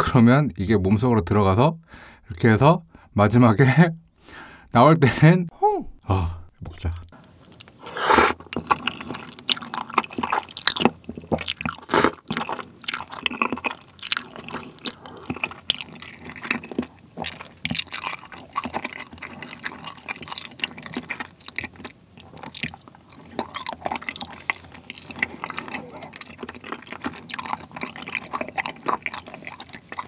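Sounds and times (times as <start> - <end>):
wet chewing smacks: 7.1 - 30.0
man slurping noodles: 7.8 - 8.4, 11.8 - 12.2.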